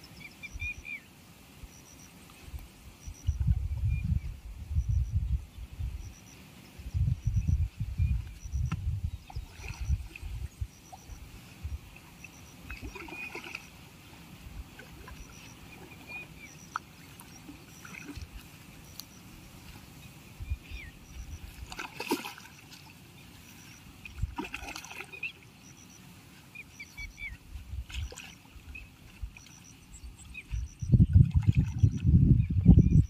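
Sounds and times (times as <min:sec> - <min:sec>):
fish thrashing in water: 0:12.7 - 0:13.7, 0:21.6 - 0:22.7, 0:24.0 - 0:25.2
loud water splashes: 0:12.7 - 0:13.7, 0:21.6 - 0:22.9, 0:24.1 - 0:25.3.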